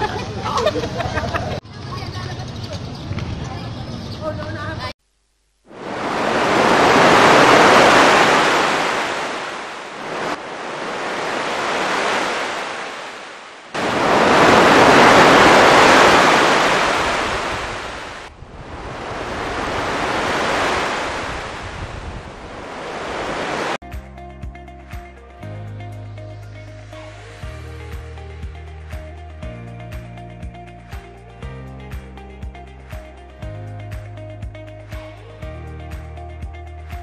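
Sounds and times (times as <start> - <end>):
waves breaking on beach: 5.7 - 23.8
wind on microphone: 5.7 - 23.8.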